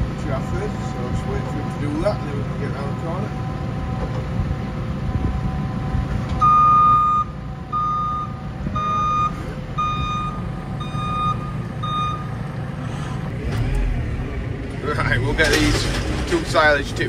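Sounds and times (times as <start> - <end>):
diesel engines running: 0.0 - 17.0
reversing alarm beeping: 6.4 - 12.4.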